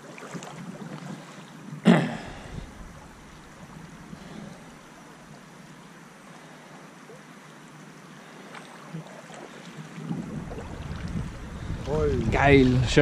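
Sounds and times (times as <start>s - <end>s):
river water rushing: 0.0s - 13.0s
wind buffeting microphone: 0.6s - 4.7s, 9.9s - 13.0s.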